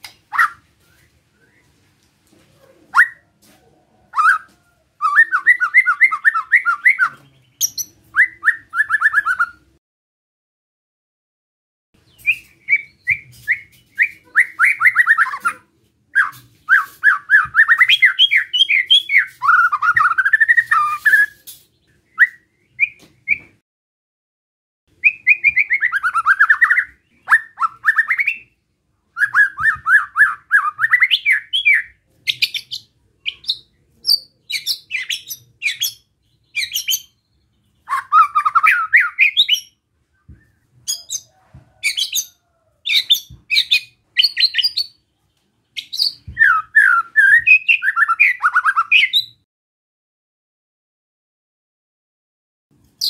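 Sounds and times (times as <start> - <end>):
bird singing rasping notes: 12.0 - 23.5, 25.0 - 41.3, 45.7 - 49.4.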